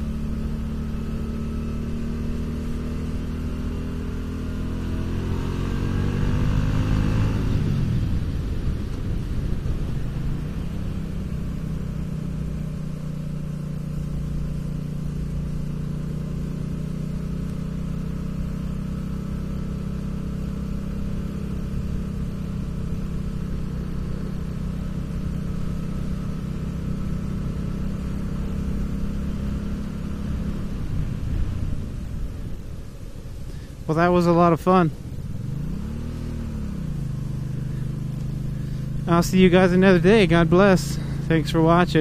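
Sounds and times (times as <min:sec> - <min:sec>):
motorcycle engine cruising: 0:00.0 - 0:42.0.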